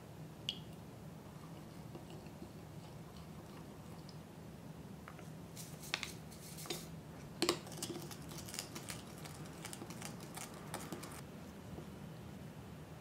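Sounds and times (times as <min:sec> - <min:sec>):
plastic spoon stirring in glass: 0:07.4 - 0:11.2
foil packet rustling: 0:07.6 - 0:11.2.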